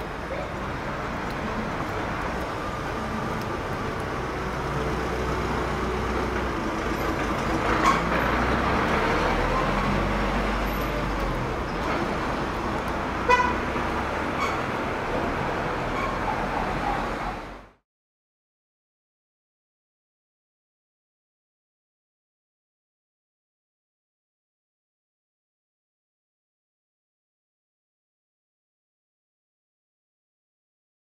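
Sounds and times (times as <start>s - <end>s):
passing vehicles rumble: 0.0s - 17.8s.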